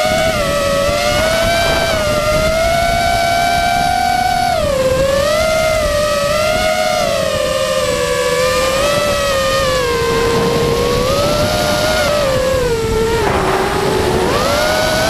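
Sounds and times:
drone motors and propellers whining: 0.0 - 15.0
wind rushing: 7.7 - 15.0.

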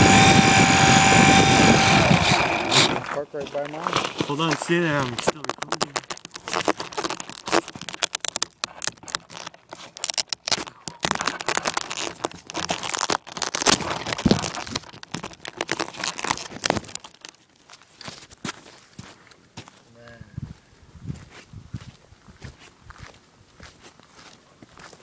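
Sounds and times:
microphone handling crackle: 0.0 - 19.4.

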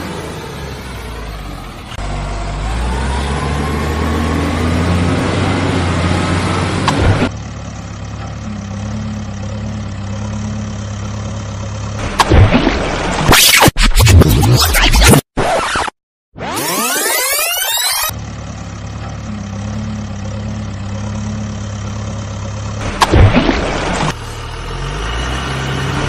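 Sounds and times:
engine revving: 0.0 - 7.4, 8.2 - 18.2, 19.0 - 26.0
engine idling: 6.7 - 12.2, 18.1 - 24.8.

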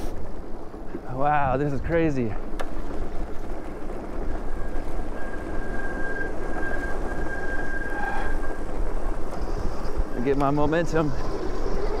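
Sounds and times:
tyres rumbling on dirt trail: 0.0 - 12.0
high electric motor whine: 4.2 - 12.0.

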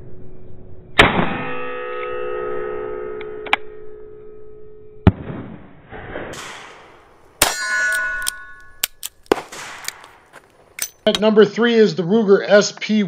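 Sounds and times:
revolver shots: 5.0 - 10.3
metallic clang ringing: 6.4 - 9.1.

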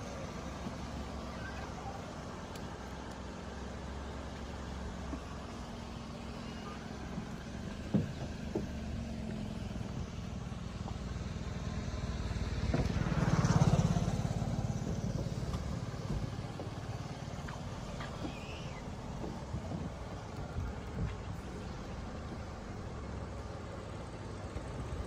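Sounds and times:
car engine idling: 0.0 - 25.0
vehicle passing by: 5.6 - 25.0
light knocks: 7.1 - 9.5.

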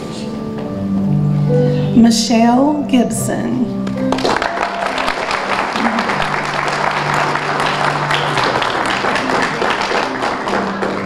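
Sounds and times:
soft music with low notes: 0.0 - 11.0
audience applauding: 3.8 - 11.0.

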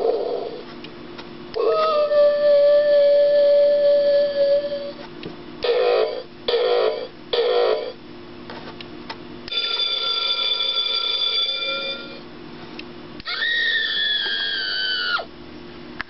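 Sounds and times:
ringing electronic tone: 9.5 - 12.2.

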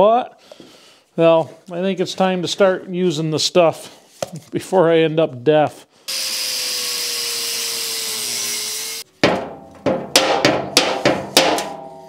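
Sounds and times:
angle grinder whining: 6.1 - 9.1
sharp metallic knocks with ringing: 9.2 - 12.0.

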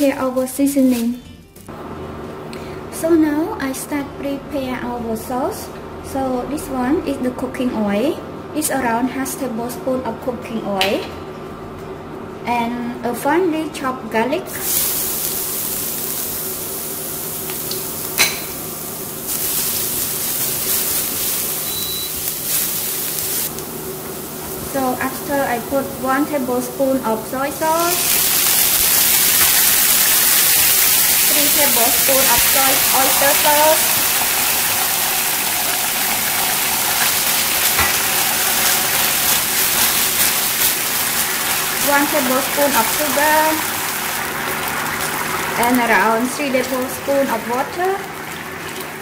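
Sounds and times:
garlic sizzling in hot oil: 14.5 - 49.0.

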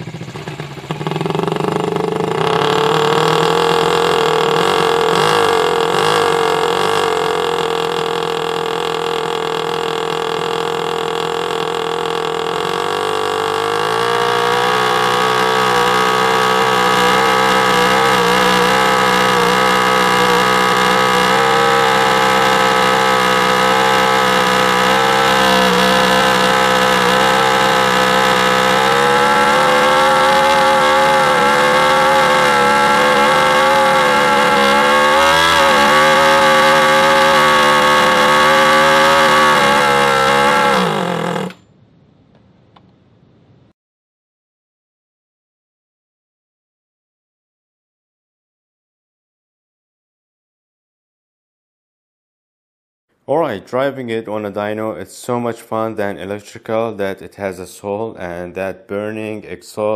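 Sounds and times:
wheels spinning on roller: 0.0 - 41.6
small gasoline engine running: 0.0 - 41.7.

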